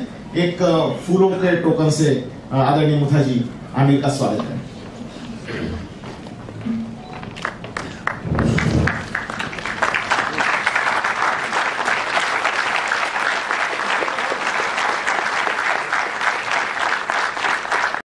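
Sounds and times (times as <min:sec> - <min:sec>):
audience applauding: 0:07.3 - 0:18.0.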